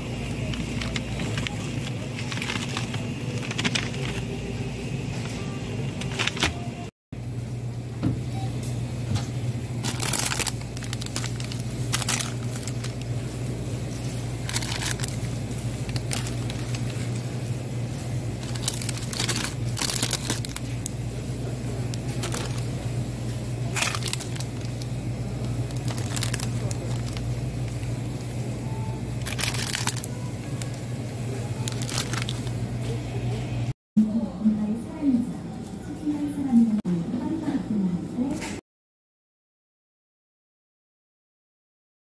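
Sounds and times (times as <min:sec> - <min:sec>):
steady low hum: 0:00.0 - 0:38.3
plastic wrappers crinkling: 0:00.4 - 0:04.4, 0:09.8 - 0:28.4, 0:29.2 - 0:33.0.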